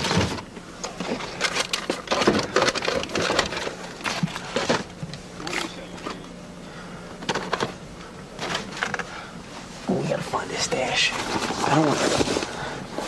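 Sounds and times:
objects knocking and clattering: 0:00.0 - 0:06.2, 0:07.2 - 0:07.8
steady low hum: 0:00.0 - 0:13.0.

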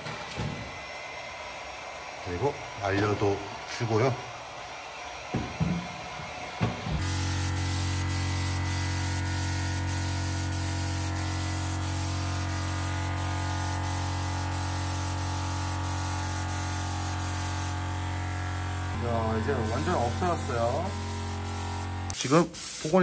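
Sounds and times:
paint spray gun hissing: 0:07.0 - 0:23.0.

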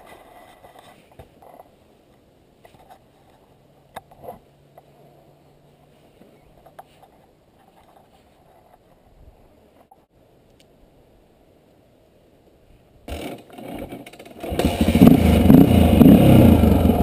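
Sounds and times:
muffled dirt bike engine hum: 0:13.1 - 0:17.0.

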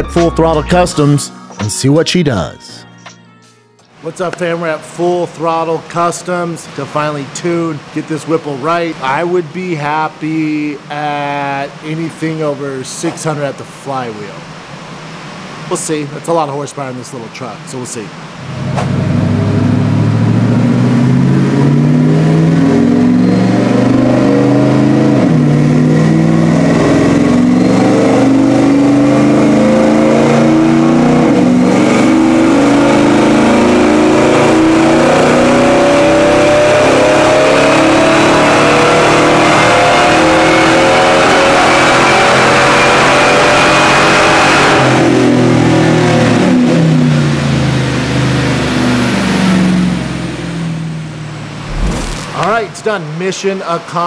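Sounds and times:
supercharger whine: 0:18.4 - 0:52.7
car engine revving: 0:18.4 - 0:52.8.

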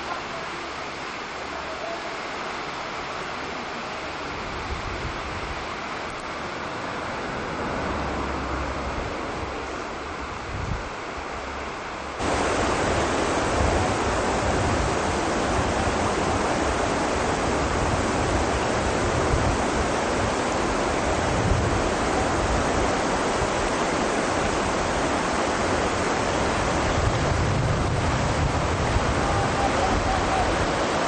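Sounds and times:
whitewater rapids rushing: 0:12.2 - 0:31.0.

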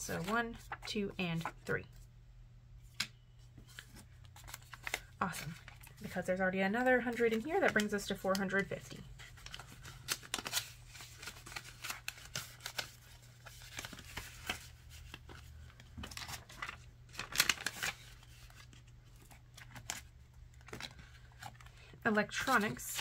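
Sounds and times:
paper and plastic rustling: 0:07.1 - 0:23.0.

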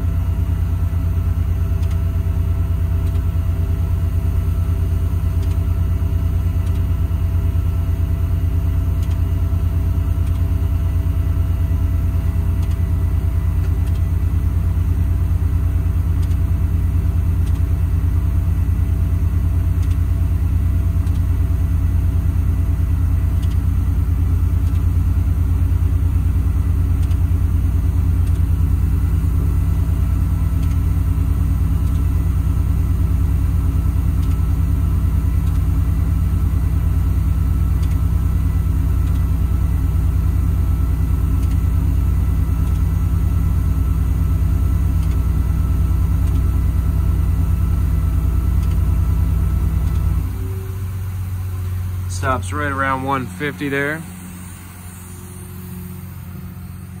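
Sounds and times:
diesel engine idling: 0:00.0 - 0:57.0
air compressor running: 0:31.0 - 0:57.0.

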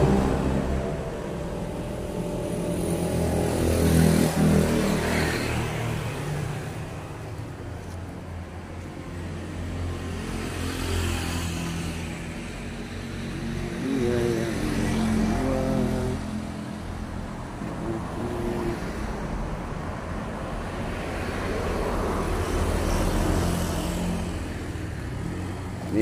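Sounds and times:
truck engine: 0:00.0 - 0:11.0
steady traffic rumble: 0:00.0 - 0:26.0
vehicle passing: 0:00.0 - 0:26.0.

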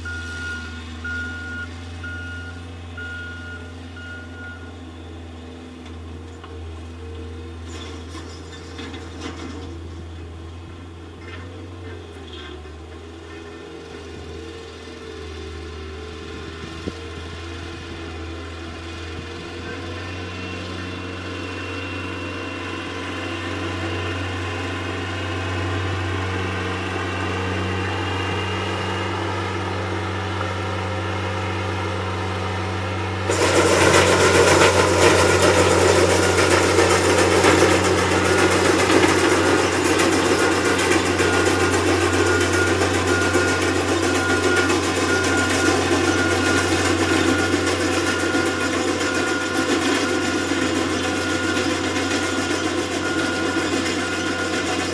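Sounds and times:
diesel engine running: 0:00.0 - 0:54.9
loud rough grinding noise: 0:33.1 - 0:54.9.

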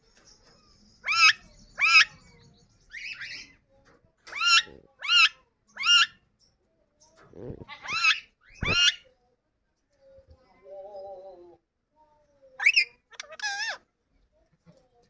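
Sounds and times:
parakeet shrill calls: 0:07.8 - 0:09.0.

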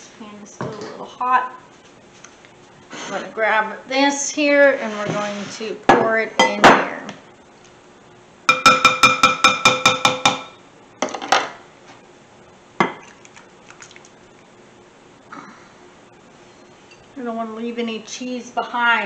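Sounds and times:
ringing strikes on kitchenware: 0:08.5 - 0:10.6
dishes set down on counter: 0:12.8 - 0:13.1.

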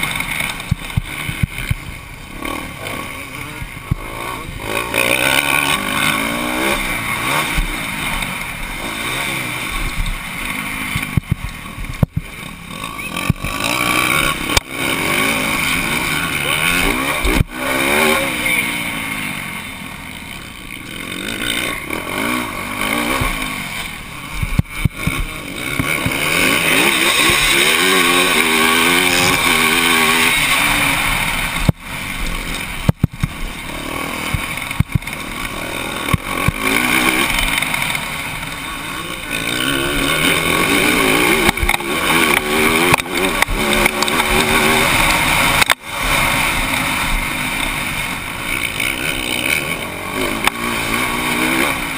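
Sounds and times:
motocross bike engine revving: 0:00.0 - 0:51.9.

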